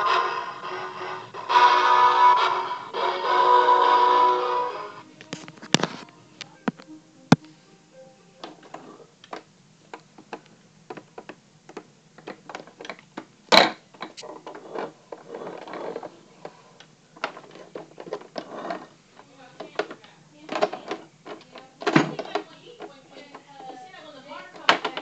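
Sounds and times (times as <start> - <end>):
rustling: 0.0 - 11.3, 14.0 - 19.5.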